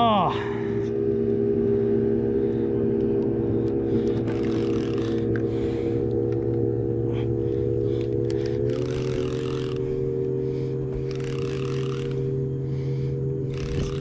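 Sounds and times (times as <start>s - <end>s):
boat motor humming: 0.0s - 14.0s.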